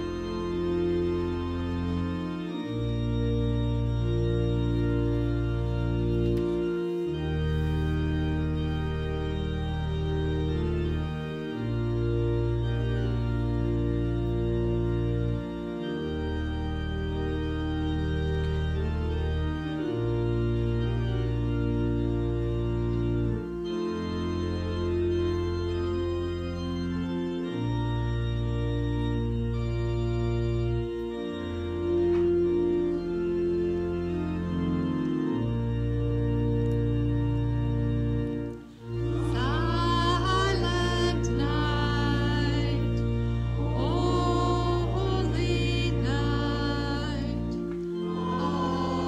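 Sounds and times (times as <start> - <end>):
church organ chords: 0.0 - 49.0
voices singing: 39.1 - 49.0.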